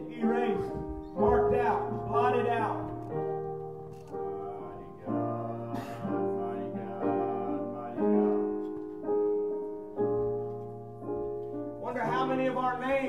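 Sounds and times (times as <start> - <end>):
held low piano note: 0.0 - 8.8
slow piano chords: 0.0 - 13.0.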